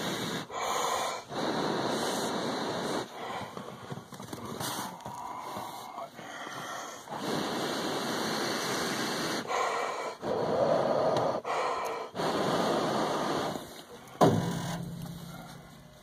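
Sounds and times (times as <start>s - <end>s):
sharp knock: 14.2s - 15.4s.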